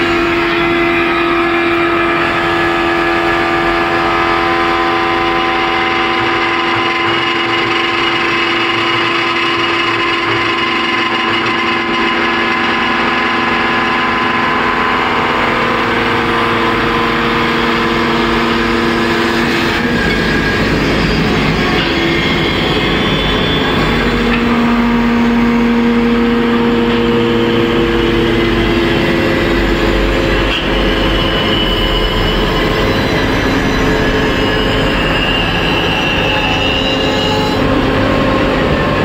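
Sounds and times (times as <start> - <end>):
wood lathe motor humming: 22.7 - 31.5.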